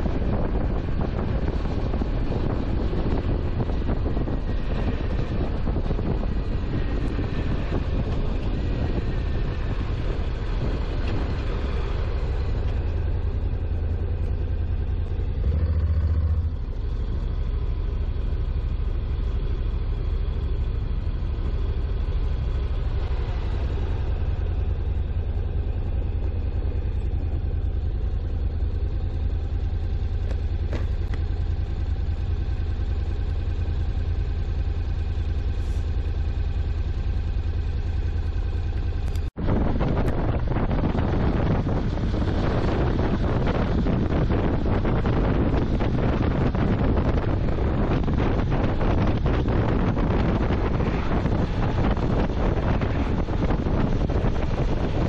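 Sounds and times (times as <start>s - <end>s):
wind buffeting: 0.0s - 17.4s, 39.2s - 55.0s
motorcycle engine rumble: 0.0s - 55.0s.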